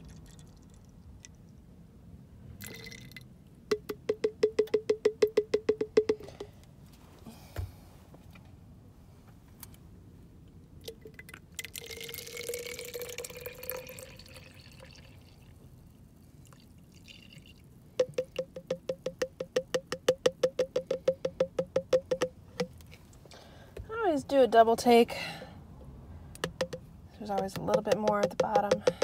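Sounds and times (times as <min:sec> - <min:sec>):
milk pouring into plastic bottle: 0:10.9 - 0:15.3
rapid milk drips: 0:10.9 - 0:23.1, 0:26.4 - 0:29.0.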